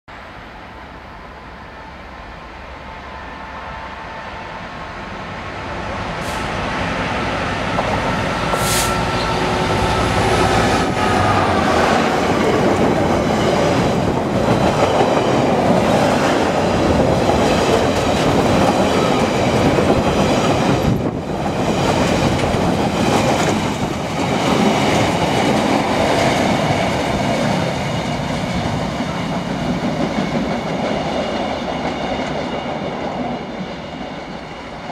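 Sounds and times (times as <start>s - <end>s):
diesel locomotive engine passing: 0.2s - 34.9s.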